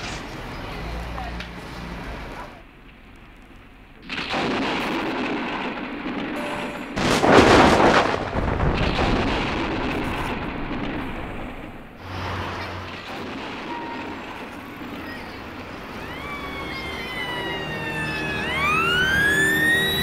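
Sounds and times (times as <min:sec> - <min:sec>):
heavy boom: 0:04.1 - 0:16.1
loud rushing noise: 0:06.9 - 0:15.9.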